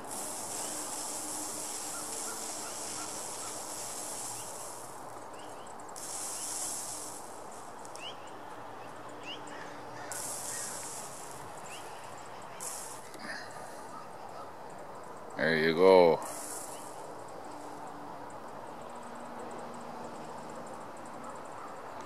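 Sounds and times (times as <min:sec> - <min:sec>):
high insect buzz: 0:00.0 - 0:22.0
short rising bird chirps: 0:00.1 - 0:14.6, 0:16.3 - 0:17.4.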